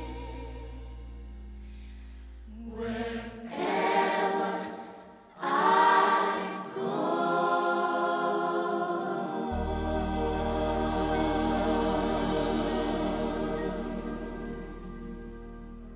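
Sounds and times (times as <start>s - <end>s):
gospel choir singing: 0.0s - 1.1s, 2.5s - 15.9s
low held bass note: 9.5s - 15.9s.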